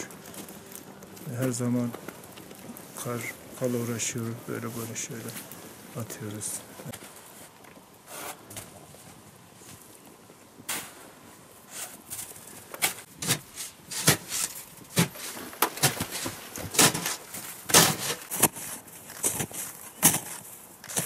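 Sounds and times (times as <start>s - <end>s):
footsteps crunching in snow: 0.0s - 21.0s
shovel scraping snow: 8.0s - 8.6s, 10.7s - 21.0s.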